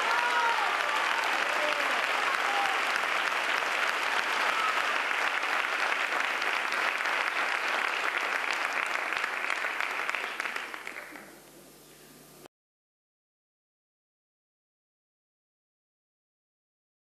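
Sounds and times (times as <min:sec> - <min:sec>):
audience applauding: 0:00.0 - 0:11.3.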